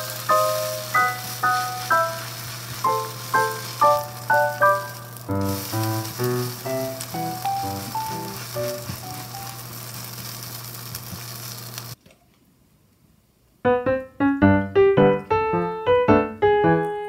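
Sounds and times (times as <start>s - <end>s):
faint music: 0.0s - 9.7s
light piano music: 0.0s - 10.3s, 13.6s - 17.0s
pancake sizzling in oil: 0.0s - 12.0s.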